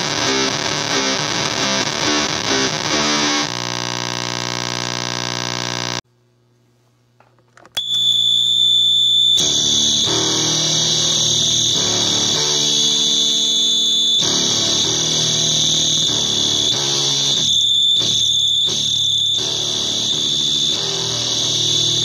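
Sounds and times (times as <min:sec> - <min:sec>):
low guitar drone: 0:00.0 - 0:03.7, 0:09.4 - 0:22.0
fuzz electric guitar riffing: 0:00.0 - 0:06.0, 0:09.4 - 0:22.0
overdriven guitar riffs: 0:00.0 - 0:06.0, 0:09.4 - 0:22.0
harsh high-pitched screech: 0:09.4 - 0:22.0.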